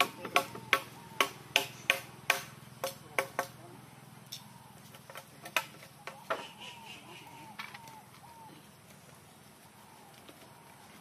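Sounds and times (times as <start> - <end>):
hammer hitting nails into wood: 0.0 - 3.5.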